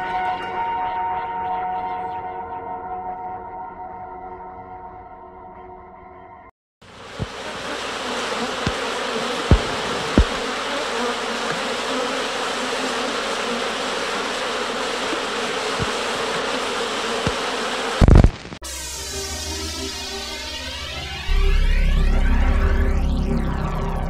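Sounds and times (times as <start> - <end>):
dense steady buzzing: 6.8 - 24.0
short low thumps: 9.5 - 10.5.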